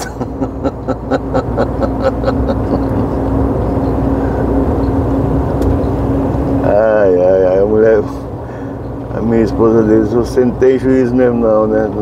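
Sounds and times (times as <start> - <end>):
man laughing: 0.0 - 3.5
truck cab drone: 0.0 - 12.0.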